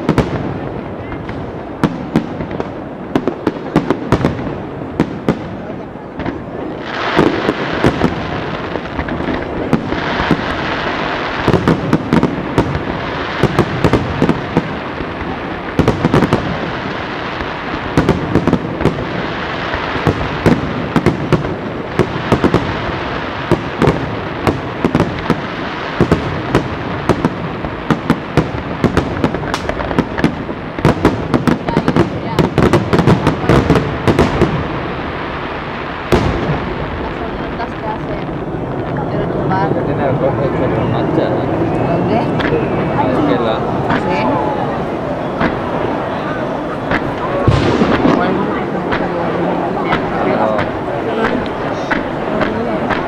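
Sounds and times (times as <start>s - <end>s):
fireworks crackling: 0.0s - 53.0s
firework shells bursting: 45.3s - 53.0s.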